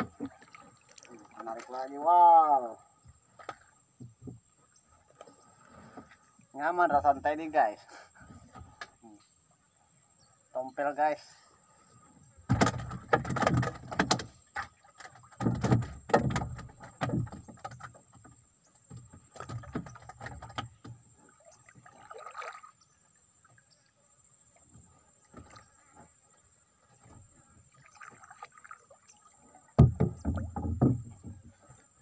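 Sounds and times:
knocks on wooden boat planks: 0:12.5 - 0:18.3, 0:29.8 - 0:31.5.

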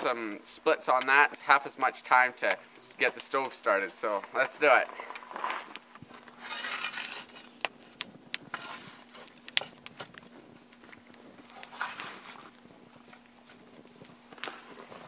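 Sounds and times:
shovel scraping in stove: 0:05.1 - 0:15.0.

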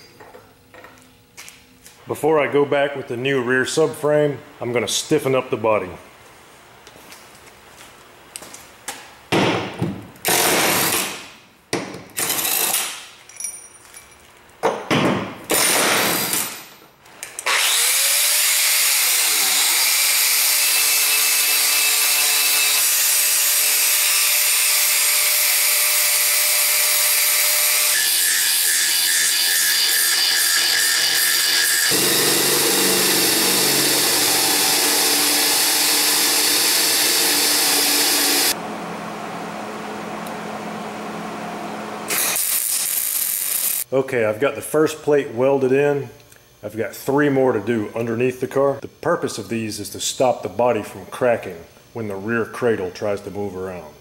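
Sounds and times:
cordless power tool bursts: 0:17.4 - 0:21.9, 0:29.8 - 0:38.6, 0:42.1 - 0:43.8
power grinder on metal: 0:17.5 - 0:38.6, 0:42.1 - 0:43.8.

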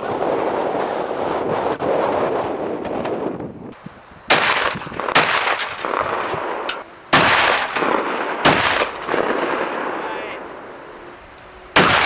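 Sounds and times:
gunshots with rolling echo: 0:04.3 - 0:10.8, 0:11.7 - 0:12.0.

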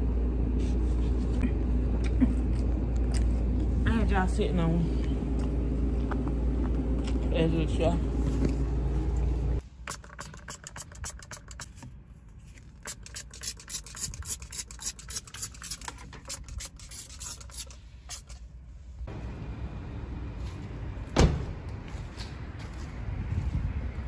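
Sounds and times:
car door thud: 0:21.1 - 0:21.6.

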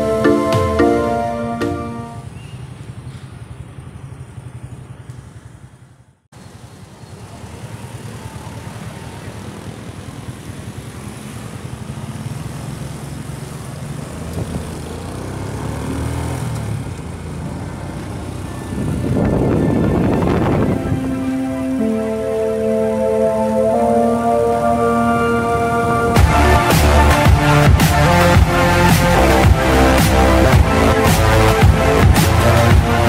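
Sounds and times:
road and traffic noise: 0:00.0 - 0:33.0
motorcycle engine running: 0:02.2 - 0:21.1.

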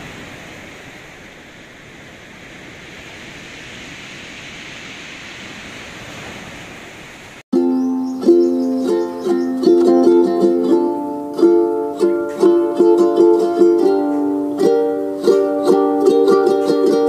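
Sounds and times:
plucked string music: 0:07.6 - 0:17.0.

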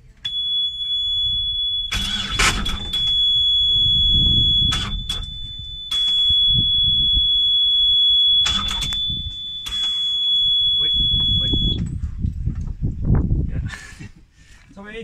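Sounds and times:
low rumbling: 0:00.0 - 0:14.4
high-pitched alarm buzzer: 0:00.3 - 0:11.8.

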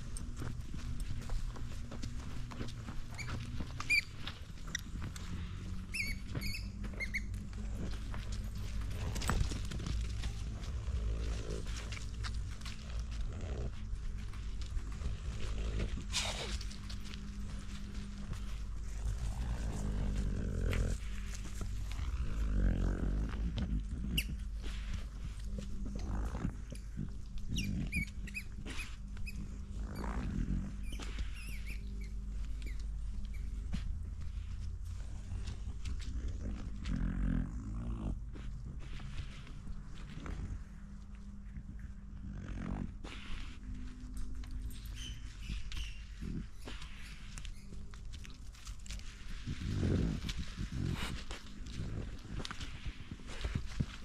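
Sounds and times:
steady low rumble: 0:00.0 - 0:54.0
high squeaky chirps: 0:05.9 - 0:07.3
camera jostling rumble: 0:06.2 - 0:22.5
rustles and crunches of leaf litter: 0:07.3 - 0:33.6, 0:42.3 - 0:54.0.

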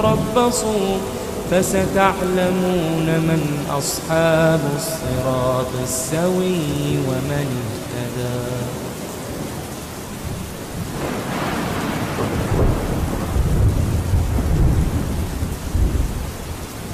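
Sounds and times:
steady rain: 0:00.0 - 0:16.9
thunder rumbling: 0:00.0 - 0:16.9.

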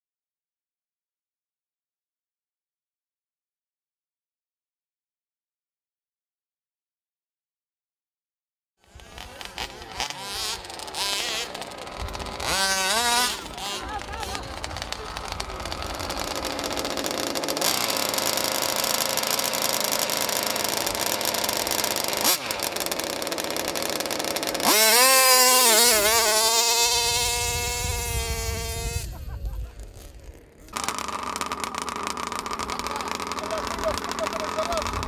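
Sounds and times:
small two-stroke engine buzzing: 0:08.8 - 0:35.0.

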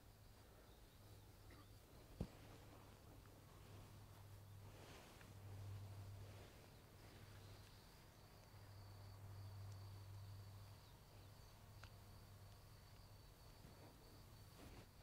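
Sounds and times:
low hum: 0:00.2 - 0:13.0.

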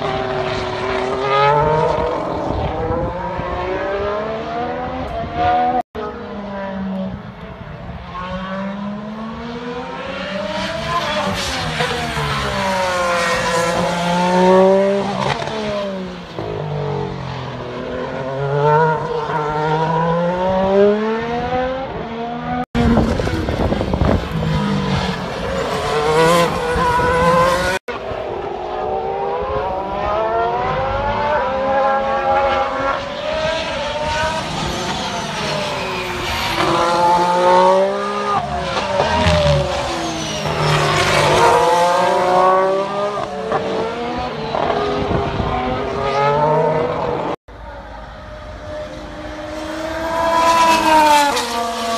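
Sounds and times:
racing car engines braking and accelerating: 0:00.0 - 0:51.9.

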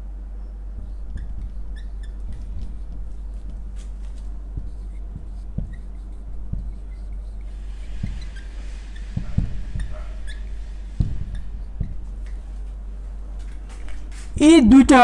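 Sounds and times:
low electrical hum: 0:00.0 - 0:15.0
marker squeaking on whiteboard: 0:00.4 - 0:12.8
dull knocks: 0:00.7 - 0:06.9, 0:07.8 - 0:12.4.

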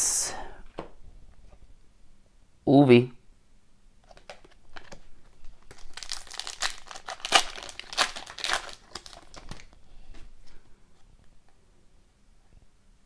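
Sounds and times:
cards rustling: 0:04.1 - 0:10.2
wrapper tearing and crinkling: 0:05.6 - 0:09.8.

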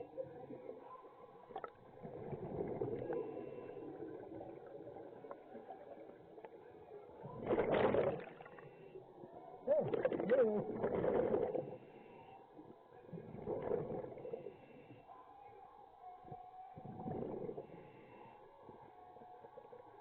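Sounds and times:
rush of exhaled bubbles: 0:01.5 - 0:03.2, 0:07.4 - 0:08.5, 0:09.8 - 0:11.8.

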